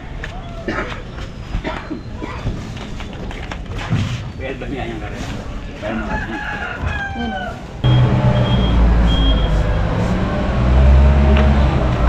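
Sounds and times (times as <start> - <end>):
rooster crowing: 5.9 - 7.8
short high beeps: 7.8 - 9.6
heavy vehicle engine idling: 7.8 - 12.0.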